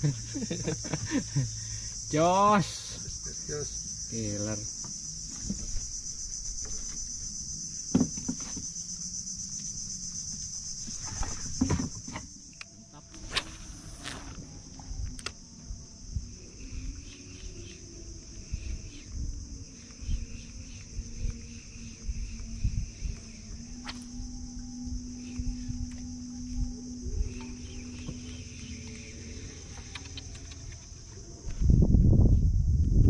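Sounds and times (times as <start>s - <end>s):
insects buzzing high-pitched: 0.0s - 33.0s
brief hiss: 13.2s - 14.4s.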